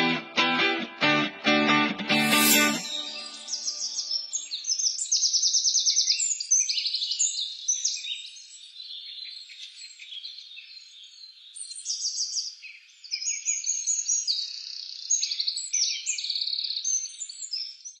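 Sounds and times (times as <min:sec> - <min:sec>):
small birds chirping and trilling: 0:06.0 - 0:18.0.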